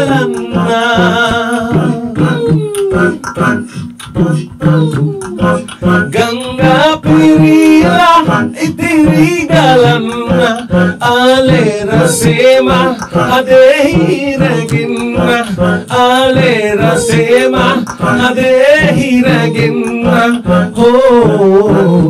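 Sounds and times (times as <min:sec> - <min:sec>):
man singing into microphone: 0:00.0 - 0:22.0.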